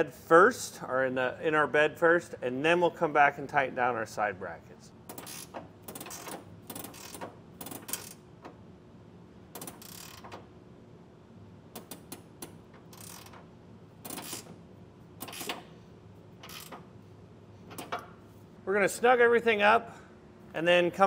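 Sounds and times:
ratcheting wrench clicking: 5.1 - 8.2, 9.6 - 10.4, 11.8 - 14.6, 15.2 - 15.7, 16.4 - 16.9.

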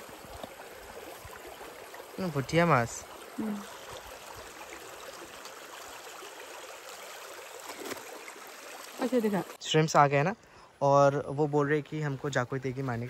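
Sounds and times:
stream flowing: 0.0 - 10.2.

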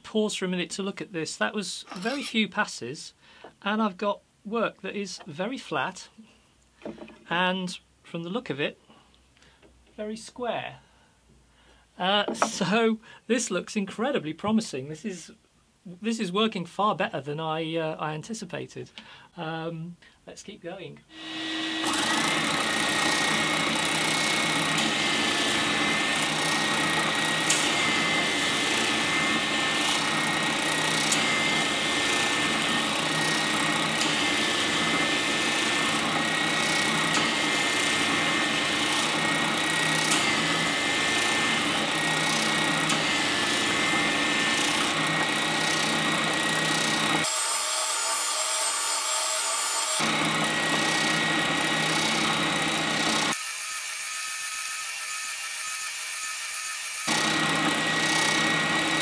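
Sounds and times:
spindle sander whining: 21.1 - 53.6, 57.0 - 59.0.

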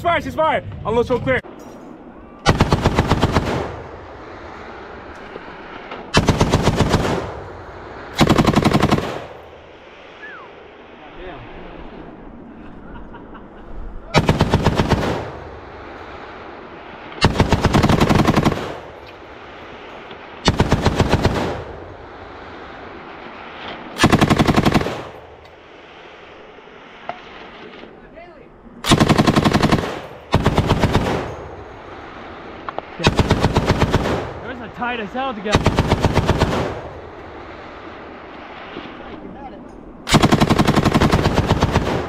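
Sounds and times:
machine gun firing bursts: 2.5 - 3.9, 6.1 - 7.4, 8.2 - 9.4, 14.2 - 15.4, 17.2 - 19.0, 20.4 - 21.8, 24.0 - 25.3, 28.8 - 31.5, 33.0 - 34.4, 35.5 - 37.0, 40.1 - 42.0.

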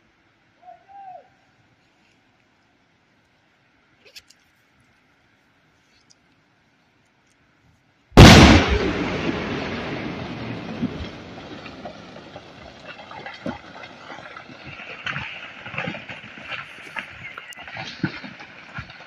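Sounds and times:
explosion bang with rumble: 8.2 - 12.8
debris clicks: 8.2 - 19.0.

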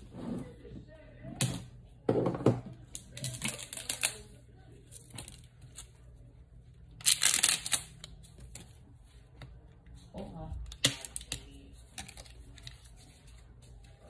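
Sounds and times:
crinkling plastic: 7.0 - 8.7.

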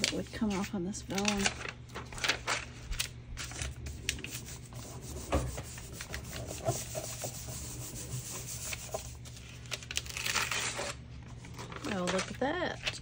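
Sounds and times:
hand rubbing paper: 3.5 - 9.6.

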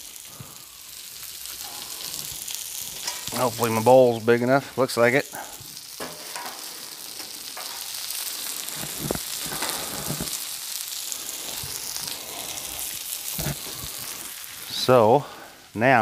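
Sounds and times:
food sizzling on griddle: 0.0 - 16.0
metal scraper on griddle: 6.0 - 7.9.

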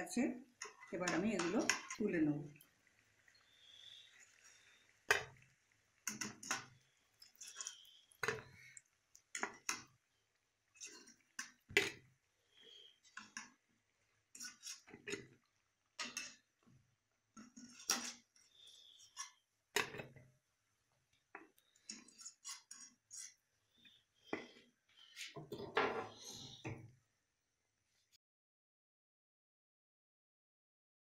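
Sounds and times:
skimmer clinking against metal pan: 0.6 - 2.2.

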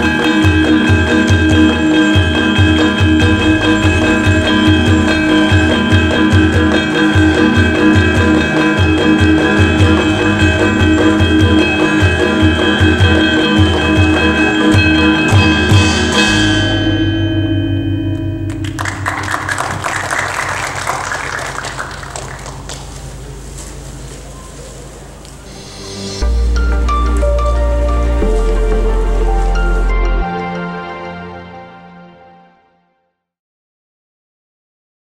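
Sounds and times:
ringing metallophones and gongs: 0.0 - 21.4.

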